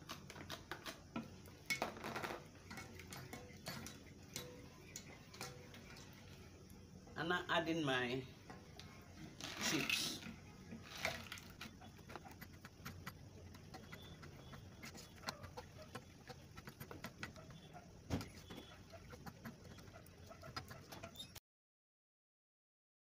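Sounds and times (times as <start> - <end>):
wooden spoon scraping a pan: 9.2 - 19.9.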